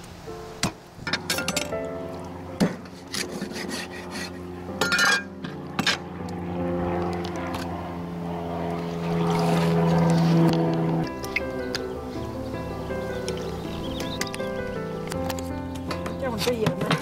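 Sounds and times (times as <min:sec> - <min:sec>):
background music with held notes: 0:00.0 - 0:03.3, 0:04.4 - 0:17.0.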